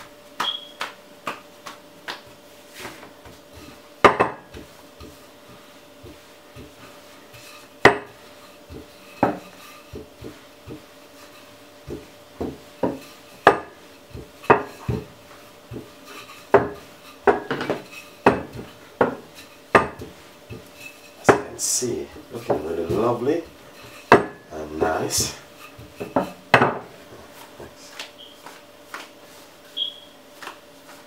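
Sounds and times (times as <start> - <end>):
rolling pin knocking on countertop: 3.2 - 5.2, 6.0 - 10.9, 11.8 - 15.9, 16.5 - 20.7, 24.1 - 24.4, 25.2 - 26.9.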